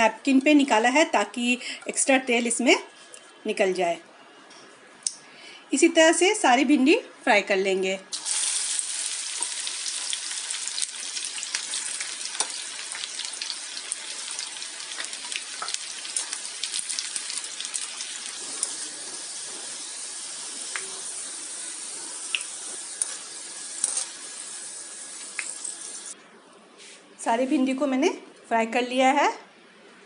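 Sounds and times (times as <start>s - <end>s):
okra deep-frying in oil: 8.1s - 26.2s.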